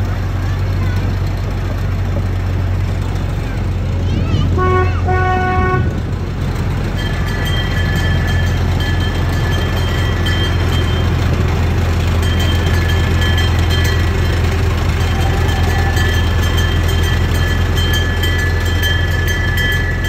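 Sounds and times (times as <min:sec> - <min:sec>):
miniature train running on track: 0:00.0 - 0:20.0
train horn toot: 0:04.5 - 0:06.0.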